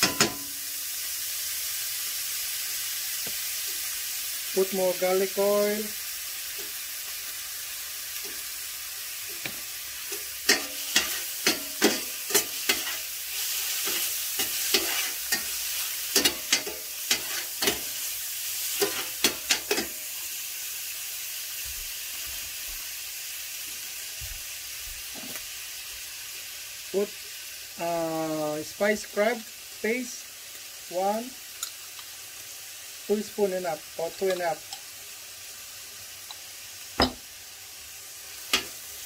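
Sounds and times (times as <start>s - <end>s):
metal spoon scraping a pan: 0.0s - 0.6s, 9.4s - 20.0s
sizzling in oil: 0.0s - 39.0s.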